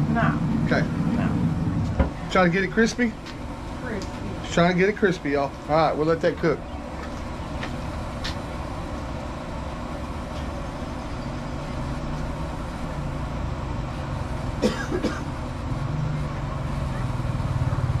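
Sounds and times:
quad bike engine running: 0:15.2 - 0:18.0.

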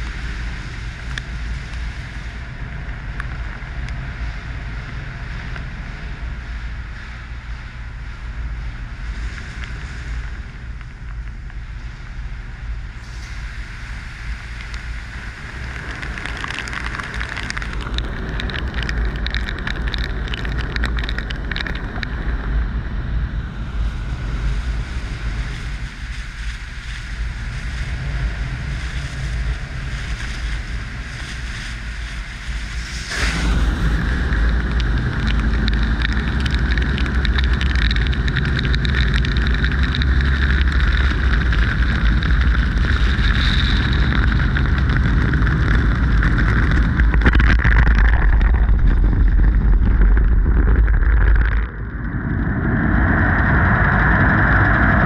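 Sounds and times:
low rumble: 0:00.0 - 0:55.0
water spray: 0:13.0 - 0:17.7.

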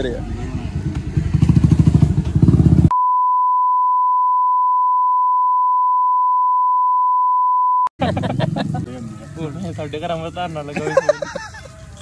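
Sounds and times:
censor bleep: 0:02.9 - 0:07.9
engine running: 0:08.0 - 0:09.9.

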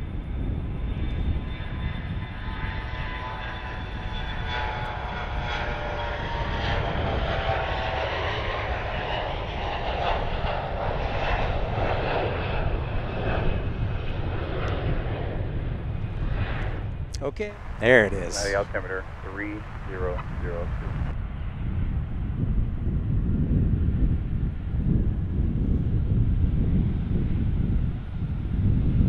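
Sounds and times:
jet taking off: 0:00.4 - 0:21.2.

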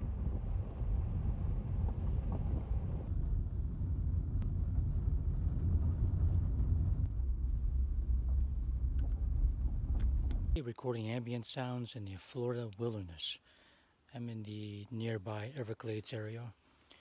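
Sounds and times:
car rumbling on unpaved road: 0:00.0 - 0:10.6
wind noise on microphone: 0:00.0 - 0:10.6.

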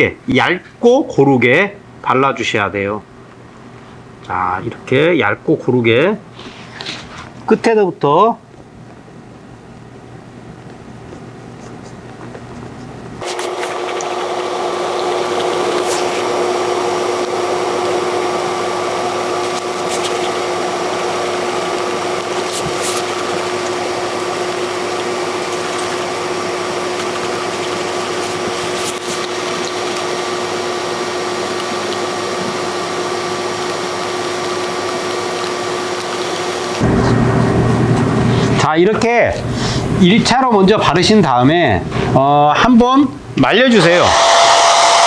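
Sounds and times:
mechanical whir with hum: 0:08.3 - 0:42.3, 0:43.1 - 0:45.0.

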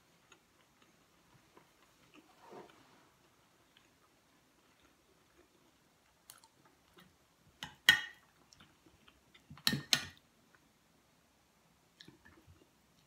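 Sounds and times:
soft chewing: 0:00.0 - 0:10.7, 0:11.9 - 0:13.0.

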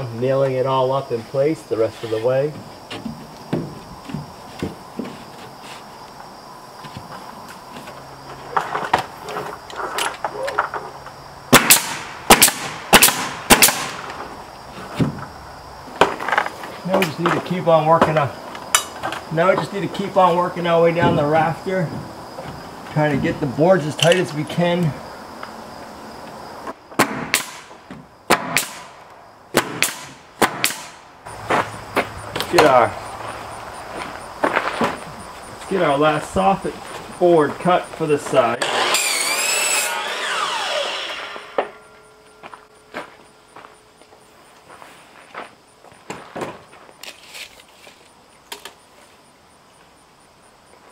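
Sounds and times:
nail gun firing: 0:11.5 - 0:14.1, 0:27.0 - 0:29.0, 0:29.6 - 0:31.0, 0:38.6 - 0:41.8.

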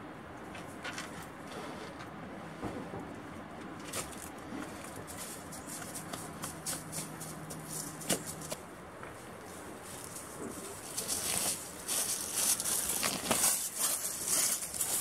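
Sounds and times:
footsteps on rock and leaves: 0:04.0 - 0:15.0.

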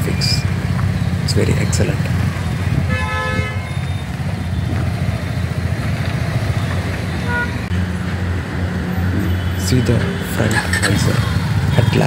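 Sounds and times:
motorcycle engine running: 0:00.0 - 0:08.3.

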